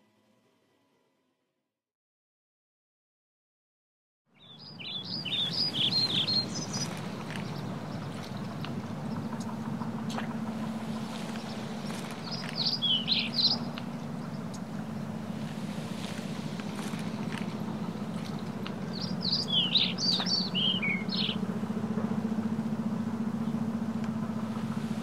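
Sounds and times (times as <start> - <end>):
small birds chirping: 4.4 - 9.6, 11.1 - 15.1, 16.8 - 21.4
steady low hum: 4.6 - 25.0.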